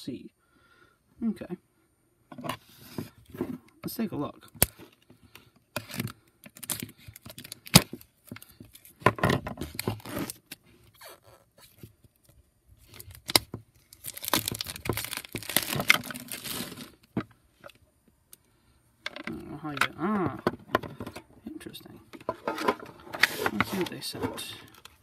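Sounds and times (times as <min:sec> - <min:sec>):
plastic wrap tearing and crinkling: 0:05.8 - 0:08.0, 0:09.6 - 0:11.8, 0:12.8 - 0:17.1
shrink-wrap scratching and clicks: 0:12.8 - 0:17.1.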